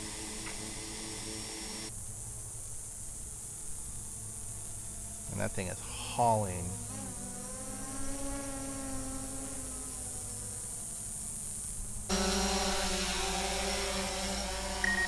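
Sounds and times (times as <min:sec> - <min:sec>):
drone propellers whining: 0:00.0 - 0:01.9, 0:12.1 - 0:15.0.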